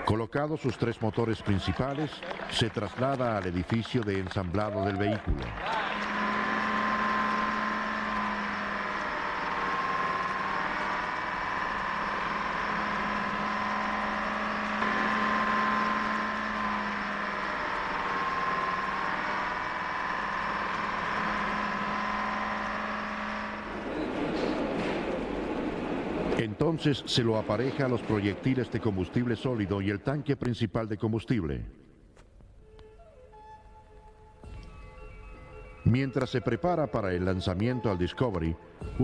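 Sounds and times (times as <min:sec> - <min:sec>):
tow tractor engine running: 0:02.2 - 0:30.2
high whine: 0:05.2 - 0:30.3.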